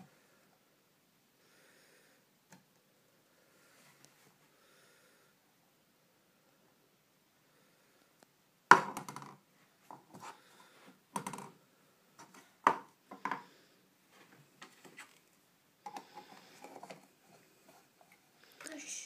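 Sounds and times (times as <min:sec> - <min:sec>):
plastic pot knocking on wooden floor: 0:08.7 - 0:09.4.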